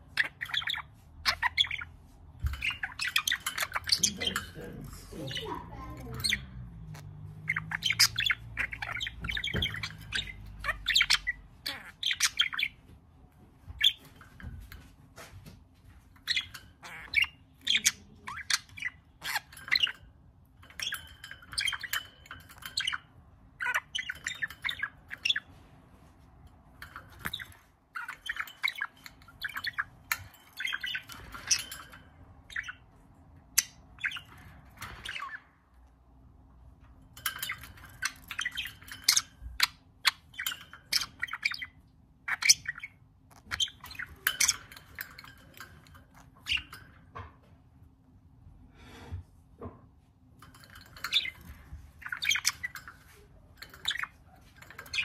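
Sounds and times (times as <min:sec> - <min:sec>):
budgerigar chattering and warbling: 0:02.6 - 0:12.7.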